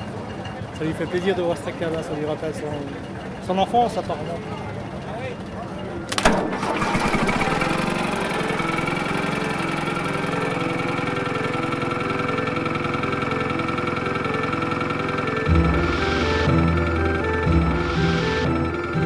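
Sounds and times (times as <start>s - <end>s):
tractor engine idling: 6.1s - 19.0s.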